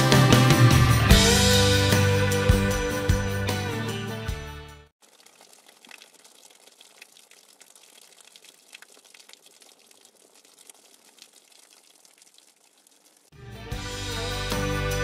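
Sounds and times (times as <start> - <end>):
fountain water splashing: 5.0 - 13.3.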